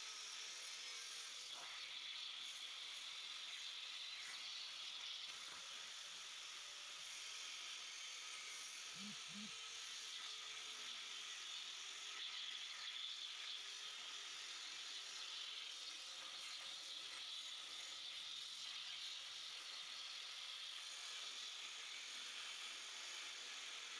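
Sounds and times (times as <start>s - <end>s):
plasma cutter hissing: 0.0s - 23.9s
mechanical whir: 3.5s - 16.6s.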